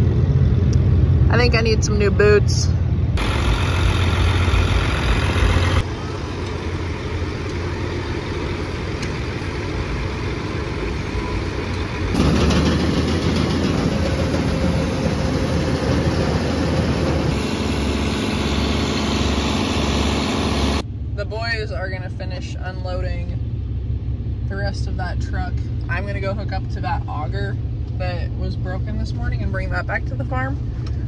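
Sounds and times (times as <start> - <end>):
tractor diesel engine running: 0.0 - 31.0
grain auger machinery noise: 3.2 - 20.8.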